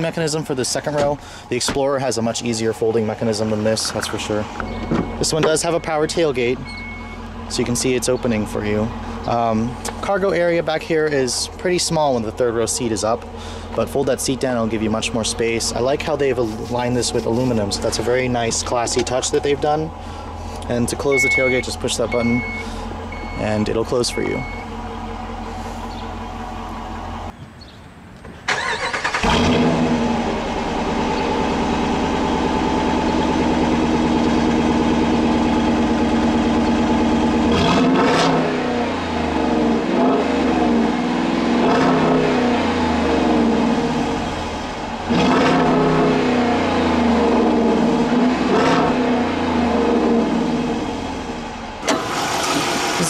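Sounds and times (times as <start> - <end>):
car engine starting and idling: 0.0 - 27.4, 28.2 - 53.0
engine revving: 28.5 - 53.0.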